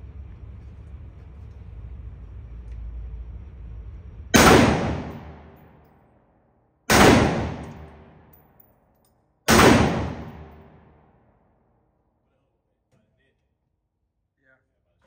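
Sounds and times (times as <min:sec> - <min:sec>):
gunshots echoing: 0:04.4 - 0:05.7, 0:06.9 - 0:08.4, 0:09.5 - 0:11.0.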